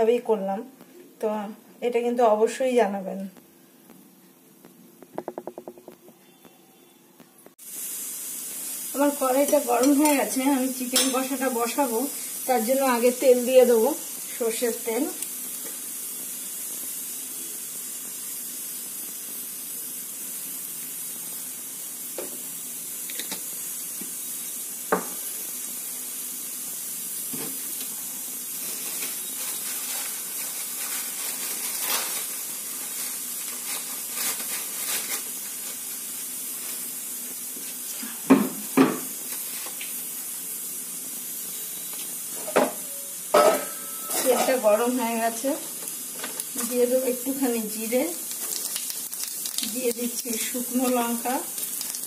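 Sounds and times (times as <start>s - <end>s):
hot oil hissing and crackling: 7.5s - 52.0s.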